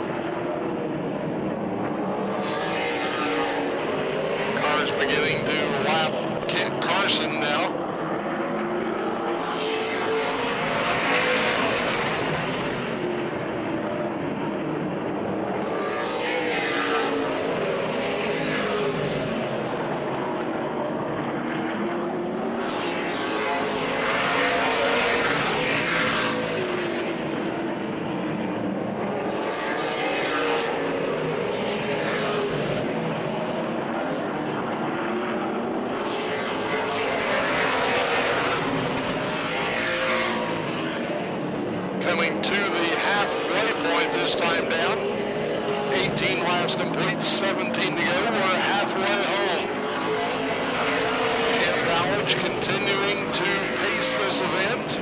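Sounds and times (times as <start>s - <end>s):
race car engines: 0.0s - 55.0s.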